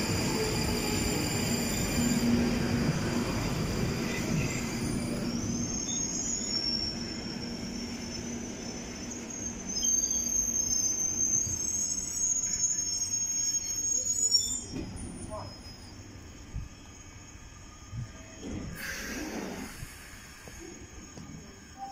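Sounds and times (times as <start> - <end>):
train low hum with rail noise: 0.0 - 21.9
high-pitched wheel squeal: 4.0 - 16.0.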